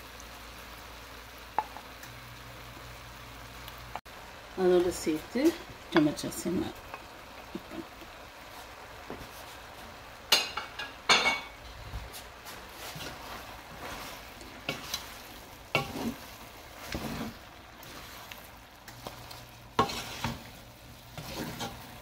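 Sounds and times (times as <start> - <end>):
faint sizzle: 0.0 - 22.0
spatula scraping and knocking pan: 12.7 - 22.0.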